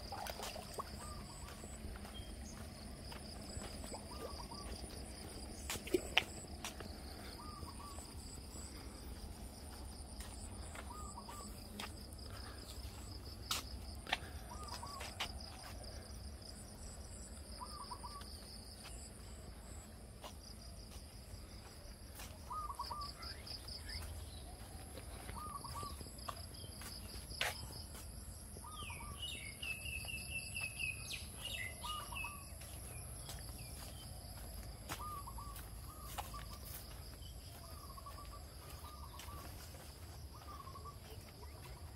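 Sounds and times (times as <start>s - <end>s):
bird chirping: 28.6s - 34.0s.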